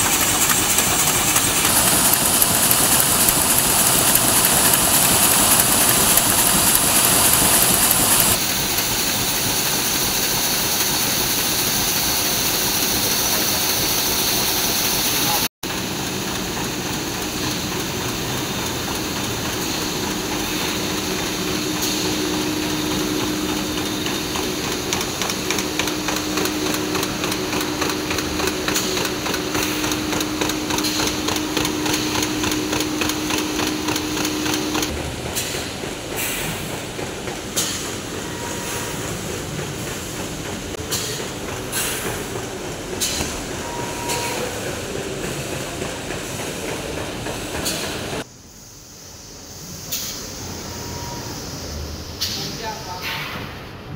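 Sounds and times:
machine hum: 0:00.0 - 0:08.4, 0:15.7 - 0:35.8.

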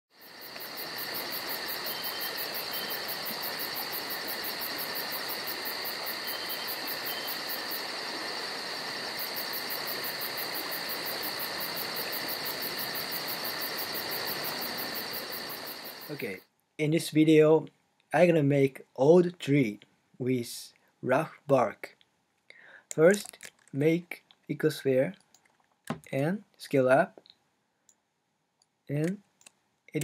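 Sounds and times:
insects chirping in pulses: 0:00.1 - 0:16.4.

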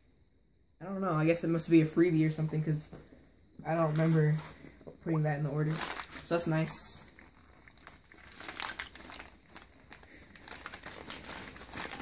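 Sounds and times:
paper wrapping crinkling: 0:03.7 - 0:04.6, 0:05.6 - 0:12.0.

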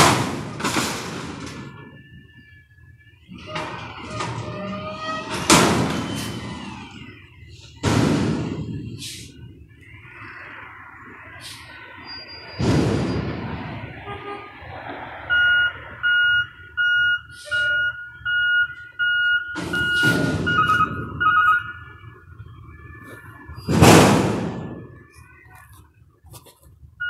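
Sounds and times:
truck reverse alarm beeping: 0:00.4 - 0:13.5, 0:15.3 - 0:25.6
air brakes hissing: 0:05.2 - 0:09.6, 0:11.3 - 0:13.3, 0:17.2 - 0:17.8.

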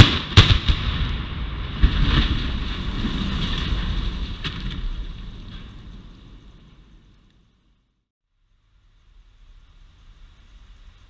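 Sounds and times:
sharp cracks: 0:00.0 - 0:06.4
bridge collapsing with rumbling crashes: 0:00.5 - 0:07.0.

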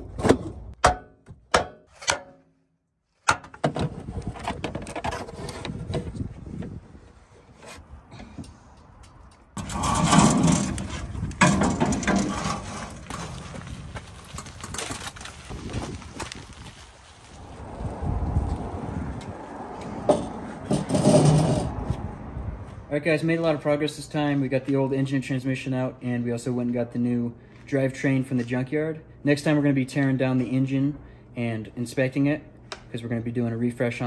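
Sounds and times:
sharp metallic knocks: 0:00.8 - 0:02.5
rubbing and scraping: 0:03.6 - 0:07.8, 0:09.6 - 0:16.4, 0:20.1 - 0:21.9
metal parts clanking: 0:09.6 - 0:13.3.

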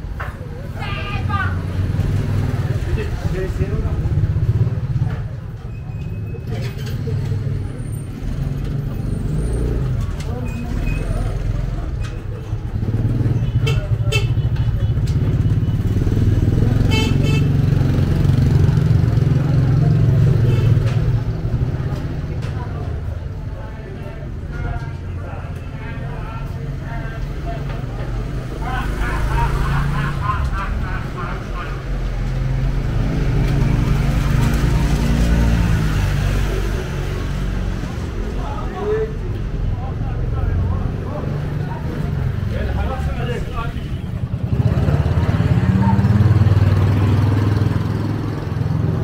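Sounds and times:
vehicle engine passing by: 0:26.8 - 0:39.2, 0:39.8 - 0:49.0.

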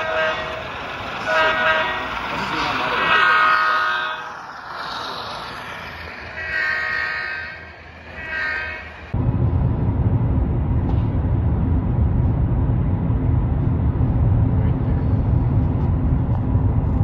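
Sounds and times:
model train horn: 0:00.0 - 0:02.2, 0:02.9 - 0:04.4, 0:06.3 - 0:09.0
model train running: 0:00.0 - 0:09.1
car and road noise rumble: 0:00.0 - 0:17.0.

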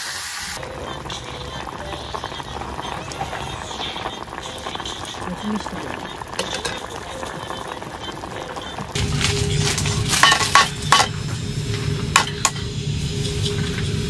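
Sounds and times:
sizzling hiss: 0:00.0 - 0:14.0
background music: 0:00.6 - 0:11.4
dishes and cutlery clinking: 0:06.4 - 0:06.9, 0:10.1 - 0:11.2.

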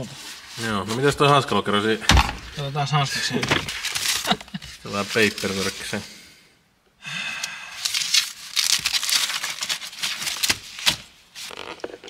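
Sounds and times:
paper rustling and crinkling: 0:02.5 - 0:06.0, 0:07.8 - 0:12.0.

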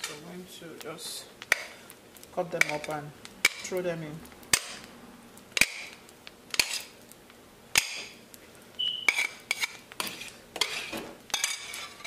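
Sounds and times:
knife clinking and scraping plate: 0:09.0 - 0:12.0.

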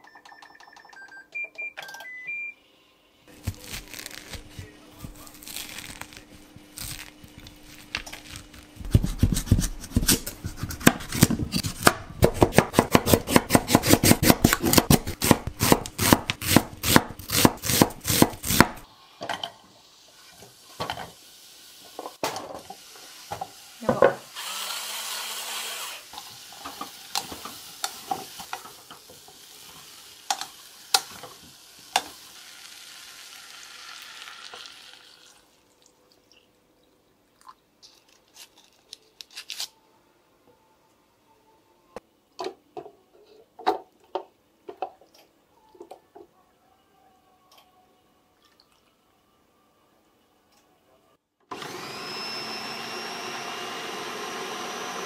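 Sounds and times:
knife chopping on wooden board: 0:08.8 - 0:18.8.

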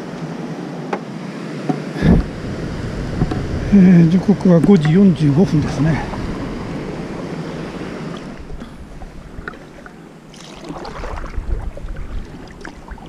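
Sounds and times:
wind noise on microphone: 0:02.0 - 0:09.8, 0:10.7 - 0:13.0
paddle splashing in water: 0:05.6 - 0:13.0.

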